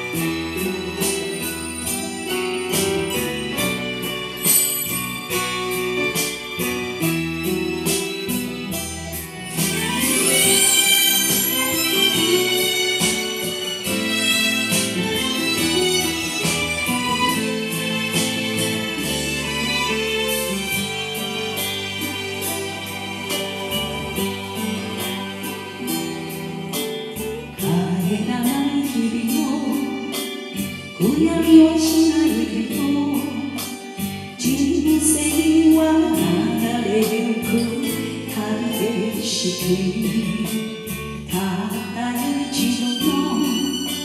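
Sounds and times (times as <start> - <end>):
band backing track: 0.0 - 44.0
woman singing slow ballad: 27.6 - 44.0.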